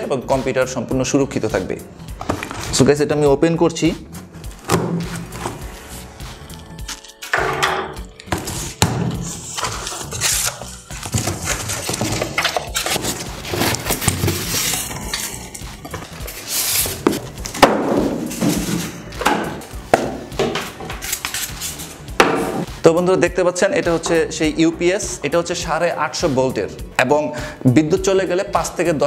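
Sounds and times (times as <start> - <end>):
cardboard rustling and scraping: 2.2 - 2.9, 4.1 - 6.2, 8.3 - 19.1.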